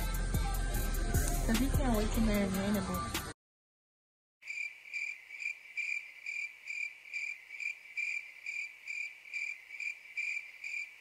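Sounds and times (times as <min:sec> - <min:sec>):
cricket chirping: 0:04.4 - 0:11.0.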